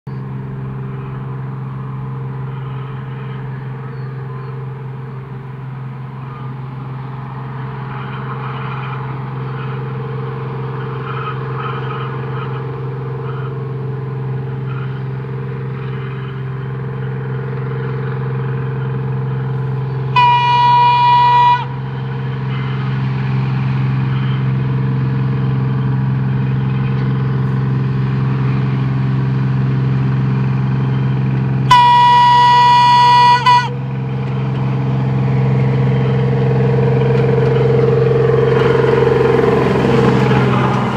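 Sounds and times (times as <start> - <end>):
diesel engines droning: 0.1 - 40.9
train horn blasts: 19.8 - 23.0, 31.7 - 34.1, 35.6 - 40.9.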